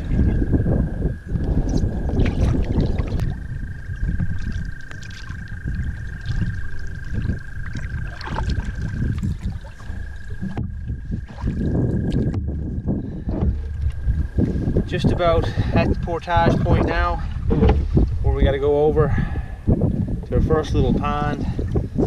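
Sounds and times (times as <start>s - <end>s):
steady low rumble: 0.0s - 22.0s
canoe paddle splashing in water: 2.1s - 3.5s, 4.1s - 12.4s.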